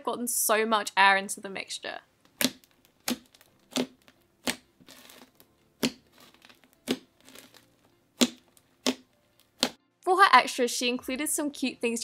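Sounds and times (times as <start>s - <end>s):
slime popping and crackling: 2.3s - 9.8s.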